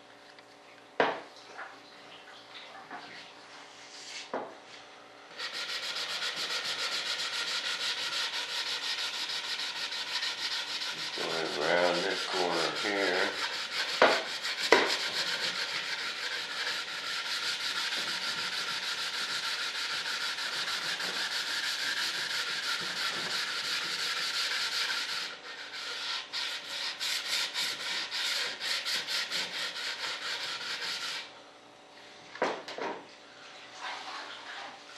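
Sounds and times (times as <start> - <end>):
sandpaper rubbing: 5.4 - 31.3.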